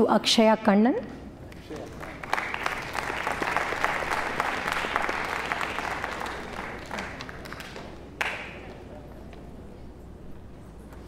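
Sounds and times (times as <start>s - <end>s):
audience applause in a hall: 1.5s - 9.4s.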